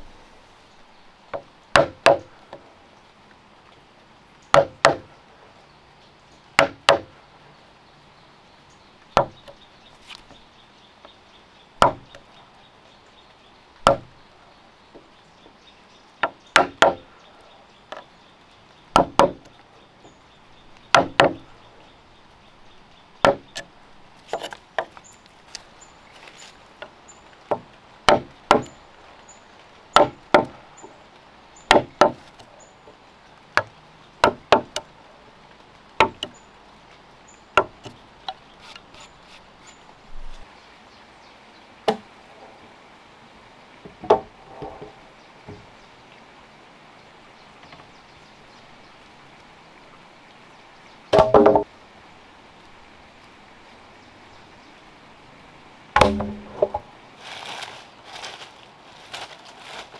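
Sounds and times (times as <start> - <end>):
tool blows knocking into wood: 56.0 - 56.8.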